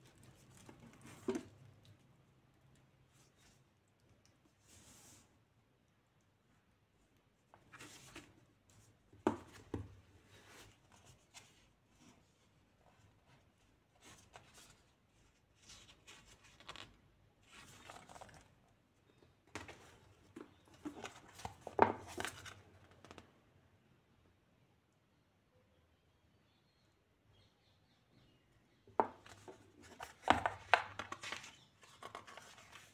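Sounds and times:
book pages rustling: 0:07.5 - 0:18.6, 0:19.5 - 0:23.3, 0:29.0 - 0:32.9.

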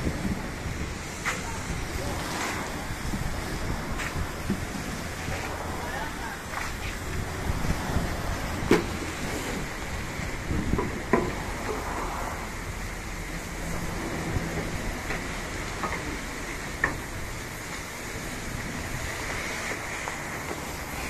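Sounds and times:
steady low rumble: 0:00.0 - 0:19.4
water dripping and splashing: 0:06.4 - 0:21.0
brush scrubbing foam: 0:18.3 - 0:21.0.

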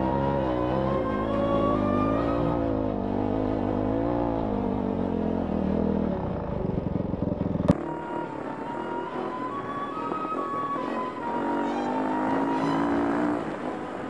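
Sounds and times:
dirt bike engine running: 0:03.0 - 0:07.9.

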